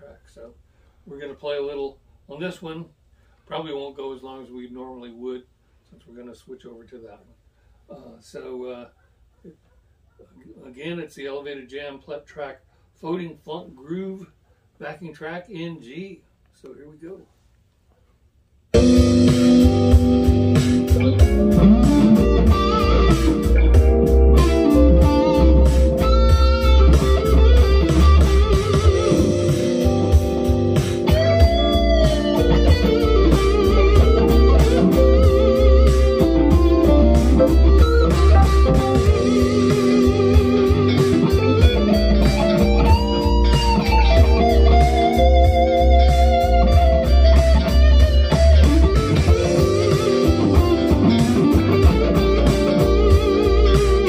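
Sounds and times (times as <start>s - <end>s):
funk backing track: 18.7s - 54.0s
electric guitar lead: 18.8s - 54.0s.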